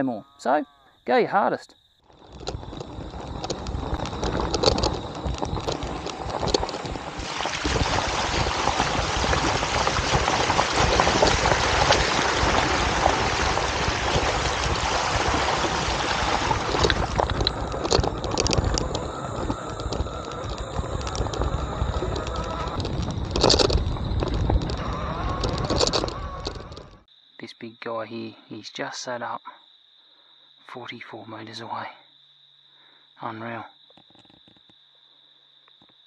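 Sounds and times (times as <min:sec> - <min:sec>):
bike clicking and rattling: 0:02.1 - 0:27.0
bike tyres rushing over dirt: 0:02.1 - 0:27.1.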